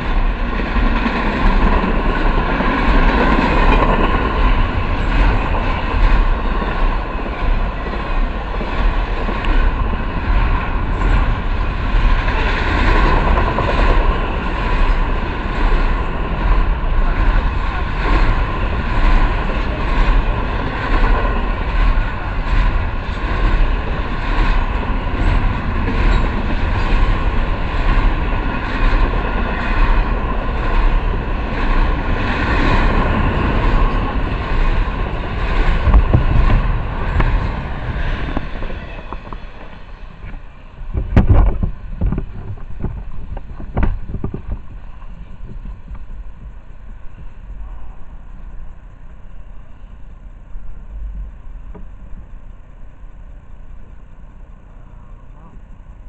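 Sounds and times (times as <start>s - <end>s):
steel wheels on rail: 0.0s - 56.0s.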